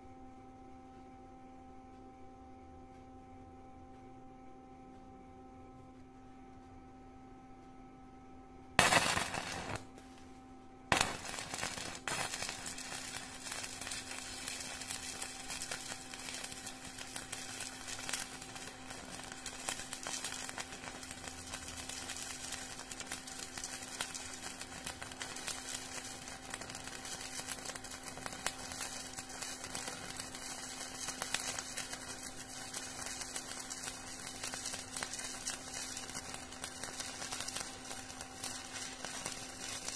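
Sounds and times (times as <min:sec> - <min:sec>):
welding arc crackling: 0:08.8 - 0:10.1, 0:10.9 - 0:39.9.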